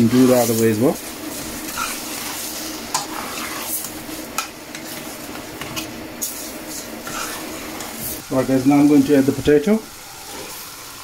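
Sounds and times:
mince sizzling in a saucepan: 0:00.0 - 0:11.0
metal spoon scraping pan: 0:01.7 - 0:05.9, 0:06.7 - 0:08.0.

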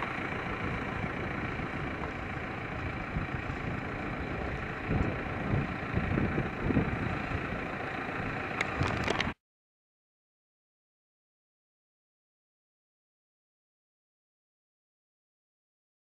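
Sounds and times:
tractor engine running: 0:00.0 - 0:09.4
uneven low rumbling: 0:00.0 - 0:09.4.

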